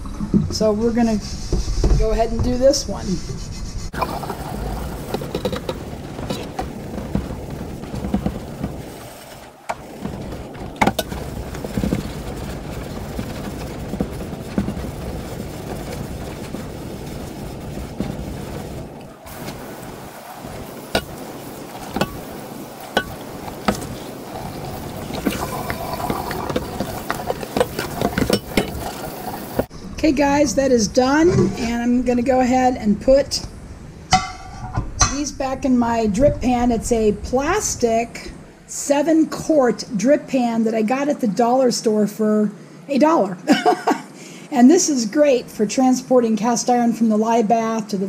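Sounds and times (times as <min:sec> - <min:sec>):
tap water running: 0:03.9 - 0:29.7
water sloshing: 0:03.9 - 0:29.7
brush scrubbing iron pan: 0:04.1 - 0:29.7
iron pan knocking against tub: 0:34.1 - 0:35.2.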